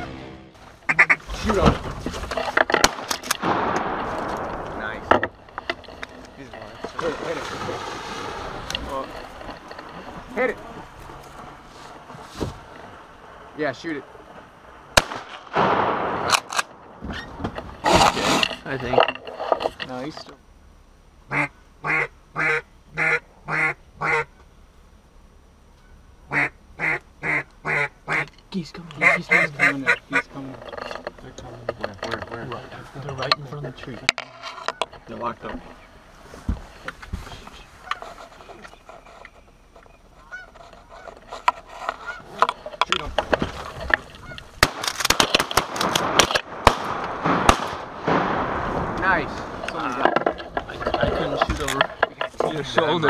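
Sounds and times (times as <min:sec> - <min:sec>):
duck quacking: 0:00.0 - 0:01.3, 0:21.3 - 0:24.3, 0:26.3 - 0:28.3, 0:29.0 - 0:30.4, 0:42.0 - 0:42.4
geese honking: 0:00.0 - 0:01.4, 0:21.2 - 0:24.4, 0:26.3 - 0:30.9, 0:37.8 - 0:44.7
sharp cracks: 0:00.8 - 0:11.3, 0:12.0 - 0:19.7, 0:40.3 - 0:52.8
shotgun shot: 0:02.8 - 0:05.1, 0:15.0 - 0:16.8, 0:44.6 - 0:49.6.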